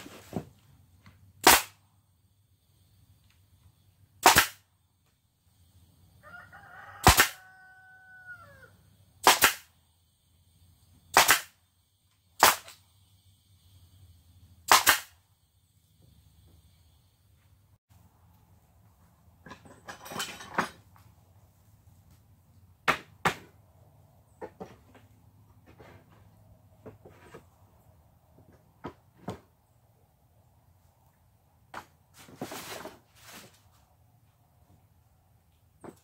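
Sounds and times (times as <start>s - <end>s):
nail gun shots: 1.4s - 1.8s, 4.2s - 4.6s, 7.0s - 7.4s, 9.2s - 9.7s, 11.1s - 11.6s, 12.4s - 12.8s, 14.7s - 15.2s
rooster crowing: 6.2s - 8.8s.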